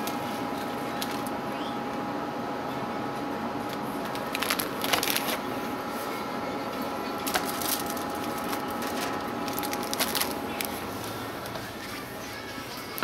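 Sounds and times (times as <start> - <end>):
crackling rustling clicks: 0.0 - 1.4, 3.7 - 5.4, 7.2 - 12.0
steady background hum: 0.0 - 13.0.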